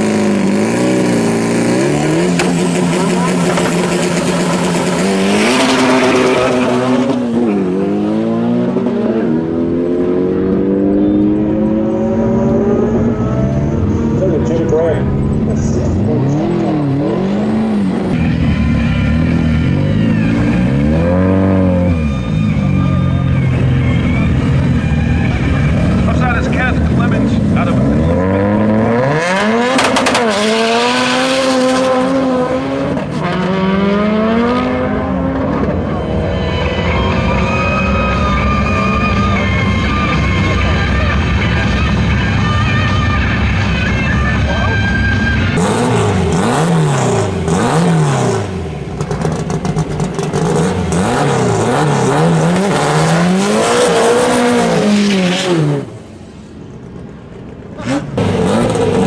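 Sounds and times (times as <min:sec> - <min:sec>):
car engine revving hard: 0:00.0 - 0:22.0, 0:24.1 - 0:39.4, 0:45.6 - 0:56.0, 0:57.8 - 0:59.0
engine crackle: 0:45.6 - 0:53.0.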